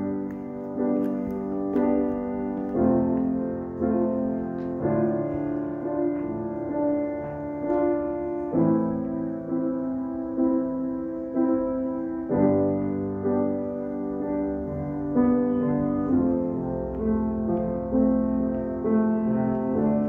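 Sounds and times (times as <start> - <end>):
piano playing slow chords: 0.0 - 20.0.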